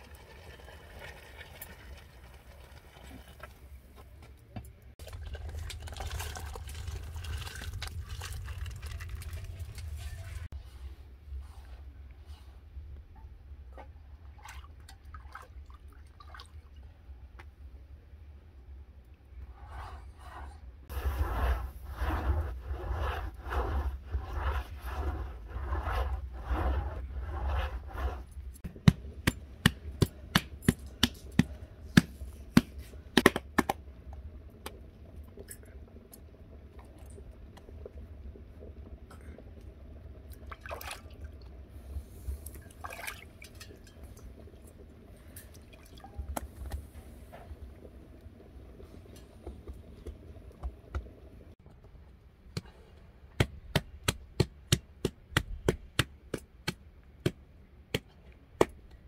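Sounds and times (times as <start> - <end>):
cloth scrubbing clay oven wall: 19.3 - 33.2
hands slapping dough: 28.6 - 33.8, 52.5 - 58.9.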